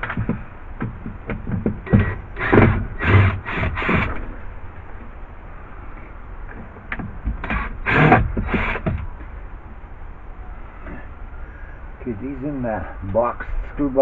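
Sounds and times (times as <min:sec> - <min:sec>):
knocks and scraping clatters: 0:00.0 - 0:05.2, 0:05.9 - 0:09.4
low background noise: 0:00.0 - 0:14.0.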